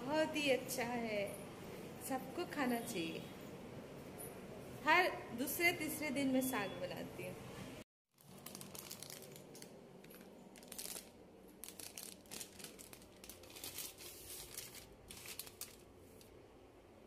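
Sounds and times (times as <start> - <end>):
plastic packet crinkling: 8.2 - 16.3.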